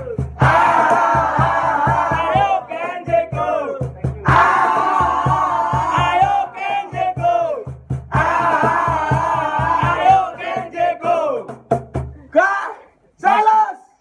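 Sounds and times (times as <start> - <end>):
steady thumping beat: 0.0 - 12.2
crowd shouting a chant: 0.4 - 11.4.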